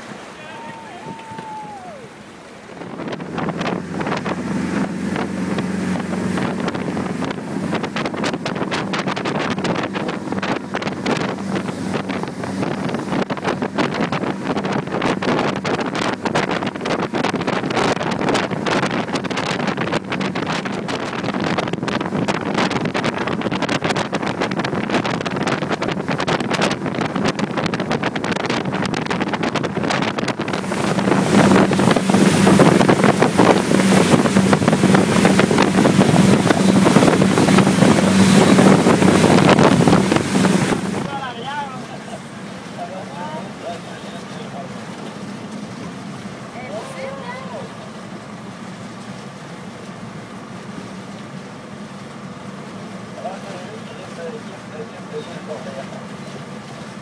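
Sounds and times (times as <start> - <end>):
outboard engine humming: 0.0 - 57.0
rushing water: 0.0 - 57.0
wind buffeting microphone: 2.6 - 41.2.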